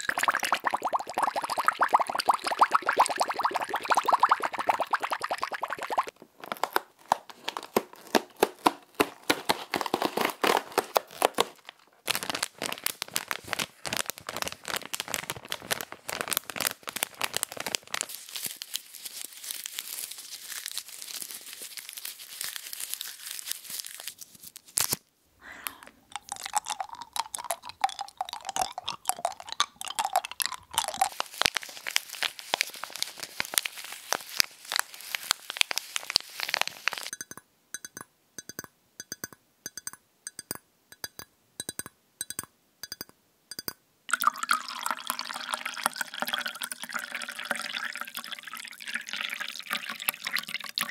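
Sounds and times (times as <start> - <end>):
crinkly pieces crunching: 6.1 - 25.0, 29.9 - 37.1
plastic packet crinkling and tearing: 6.1 - 25.1, 29.9 - 37.1
tea bag packet handled: 6.1 - 27.5, 28.1 - 37.1.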